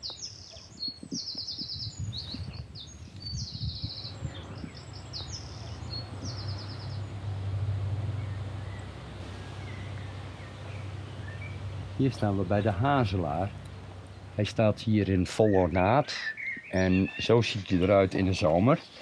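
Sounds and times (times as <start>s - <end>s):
songbird trilling: 0.0s - 7.4s, 8.0s - 19.0s
low outdoor rumble: 1.6s - 19.0s.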